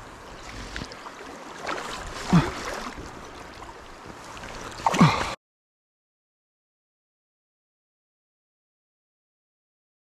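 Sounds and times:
flowing stream: 0.0 - 5.4.

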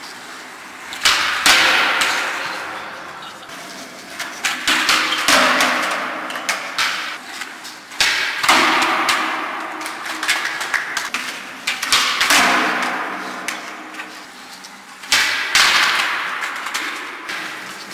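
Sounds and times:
skateboard wheels rolling on concrete: 0.0 - 8.0, 9.6 - 17.9
skateboard tails popping and landing: 0.9 - 7.2.

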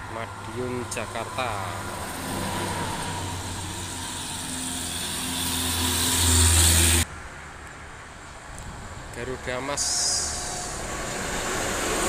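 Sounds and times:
bus engine drone: 0.0 - 12.0.

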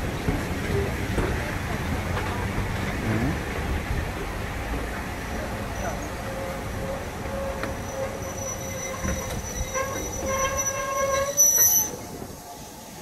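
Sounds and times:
low train rumble: 0.0 - 13.0
train brakes squealing: 5.6 - 13.0.

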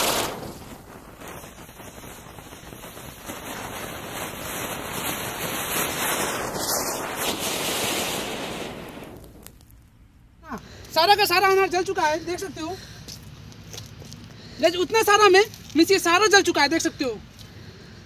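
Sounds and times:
fountain firework hissing: 0.0 - 9.8
firework crackles: 0.0 - 18.0.

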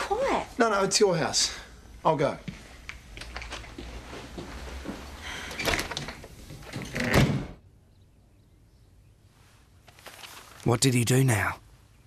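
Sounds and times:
door banging shut: 5.5 - 7.6.

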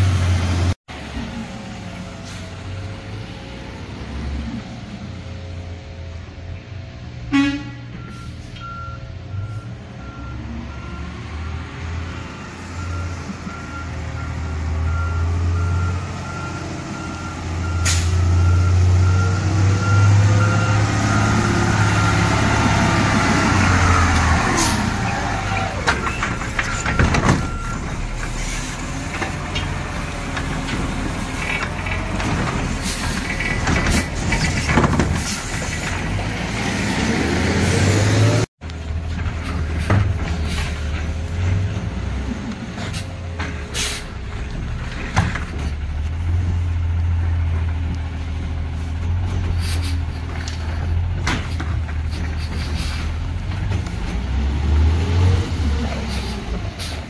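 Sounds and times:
truck engine revving: 0.0 - 5.9, 9.3 - 57.0
reversing alarm beeping: 8.0 - 11.7, 12.5 - 22.4, 26.1 - 28.1.

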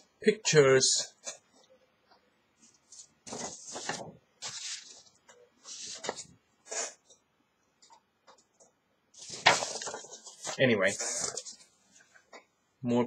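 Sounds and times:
paper card rustling: 2.6 - 7.0, 9.2 - 11.7.

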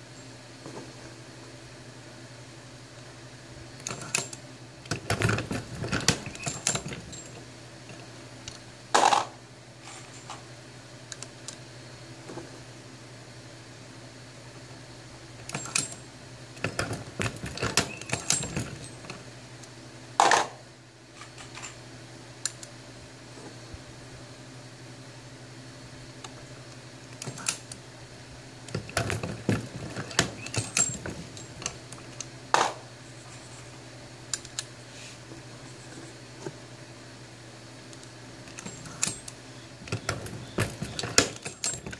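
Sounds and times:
metallic clicks of reloading press: 17.6 - 18.6.

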